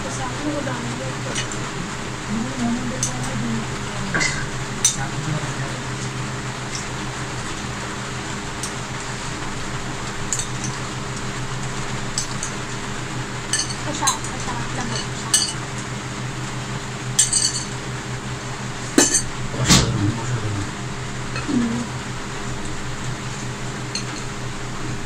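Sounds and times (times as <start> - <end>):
steady background hum: 0.0 - 25.0
metal spoon clinking on bowl: 14.9 - 15.6.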